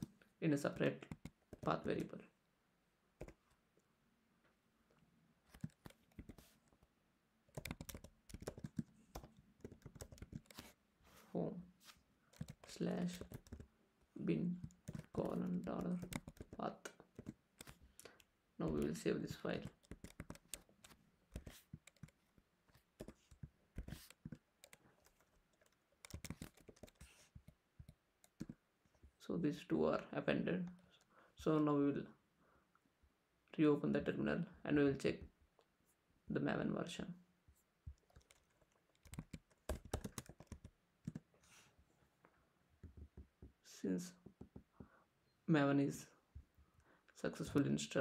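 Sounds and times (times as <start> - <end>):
computer keyboard keystrokes: 5.5 - 6.5, 7.5 - 10.7, 12.3 - 13.7, 14.6 - 18.1, 19.6 - 22.2, 23.0 - 28.6, 38.0 - 41.2.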